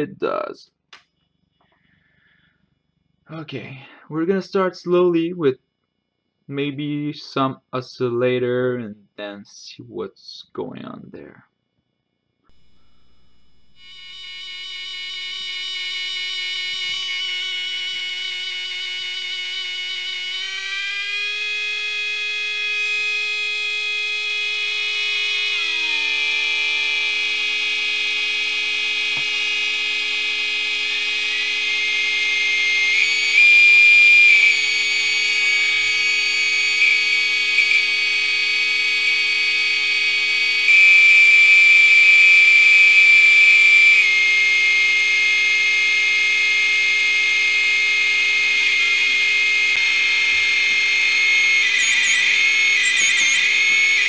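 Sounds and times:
loud high synth tone: 12.5 - 54.0
synth drone of square-wave tones: 12.5 - 54.0.

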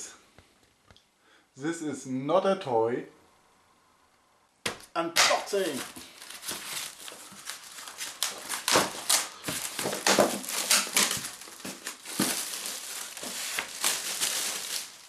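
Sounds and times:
foam tray crinkling in cardboard box: 5.3 - 15.0.

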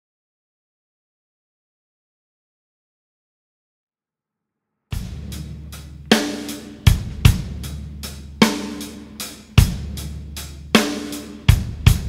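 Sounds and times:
drum kit playing slow beat: 4.9 - 12.0.

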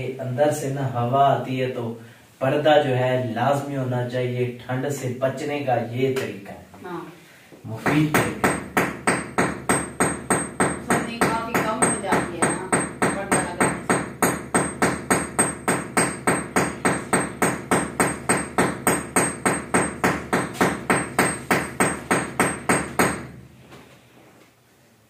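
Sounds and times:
hammer driving nail: 7.9 - 23.4.

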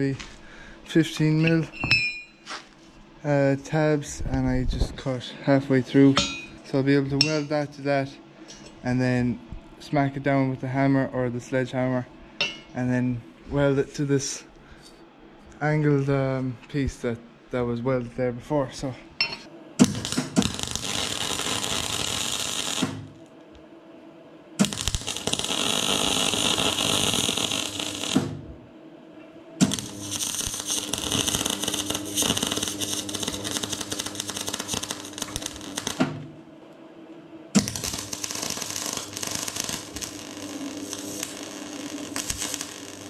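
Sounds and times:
welding arc crackling: 19.8 - 23.3, 24.6 - 28.4, 29.6 - 36.3, 37.6 - 43.0.

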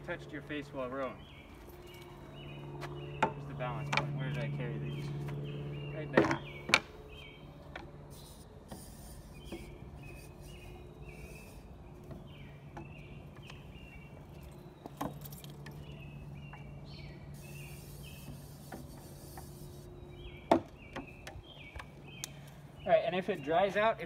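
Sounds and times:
birds chirping: 0.0 - 24.0
steady low hum: 0.0 - 24.0
pump sprayer hissing: 8.1 - 11.7.

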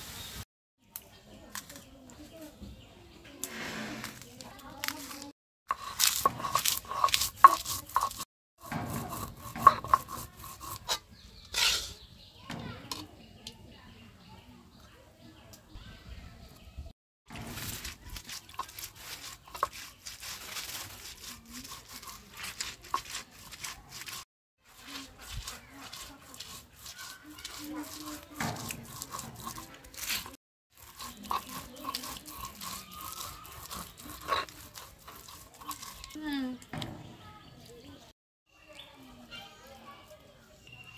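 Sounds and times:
stone roller grinding chilies: 4.0 - 12.2, 17.3 - 37.8.

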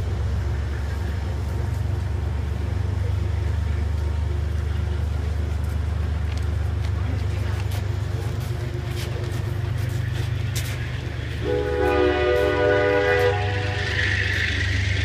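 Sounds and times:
diesel locomotive rumble: 0.0 - 15.0
train horn blast: 11.3 - 14.4.

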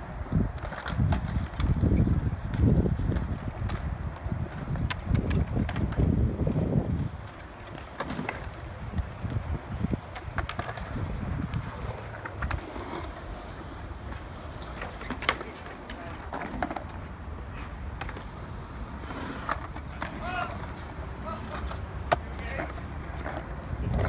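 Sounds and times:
skateboard wheels rolling on concrete: 0.0 - 24.0
skateboard clacks: 0.1 - 24.0.

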